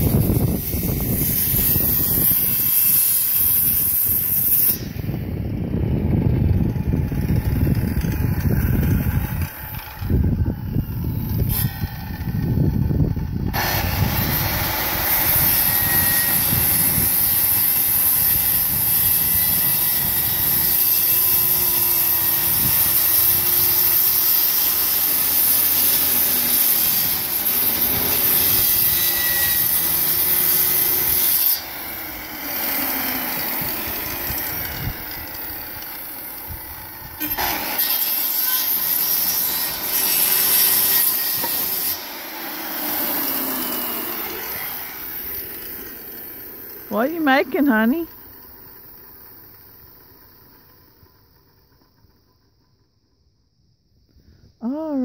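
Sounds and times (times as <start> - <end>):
circular saw cutting plywood: 0.0 - 5.2, 6.0 - 50.6.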